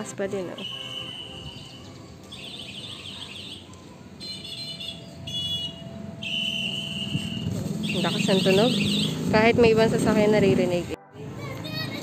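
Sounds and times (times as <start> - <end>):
electronic bicycle horn beeping: 0.5 - 9.2.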